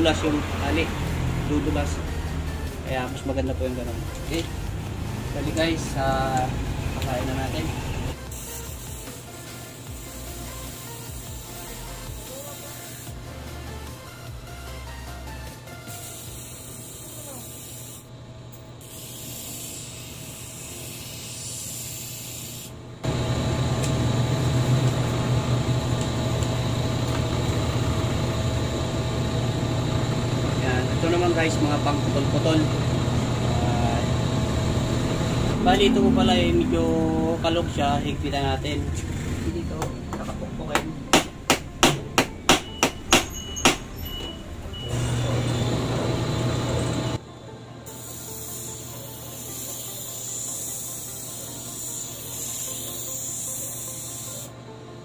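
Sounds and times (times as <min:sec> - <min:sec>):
electric motor humming: 0:18.7 - 0:39.5, 0:44.7 - 0:47.2.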